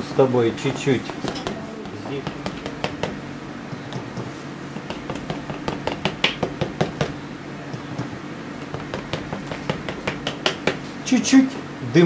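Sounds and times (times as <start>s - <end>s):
steady low hum: 0.0s - 12.0s
brush tapping on canvas: 0.7s - 7.2s, 8.0s - 10.9s.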